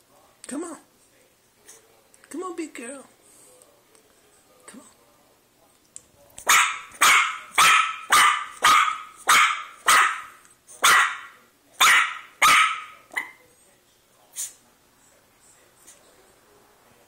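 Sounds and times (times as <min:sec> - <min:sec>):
puppy barking sharply: 0:06.4 - 0:13.4.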